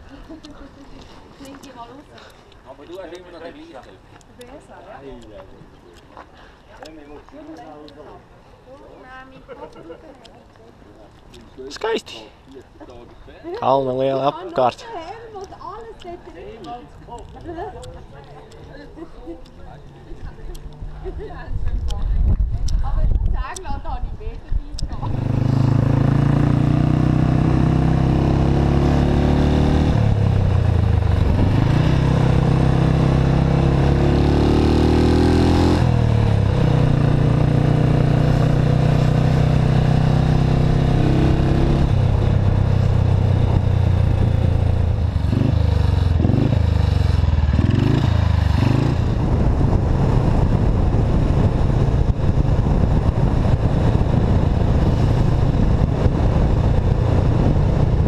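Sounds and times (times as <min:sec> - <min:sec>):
motorcycle engine accelerating: 0:24.8 - 0:58.0.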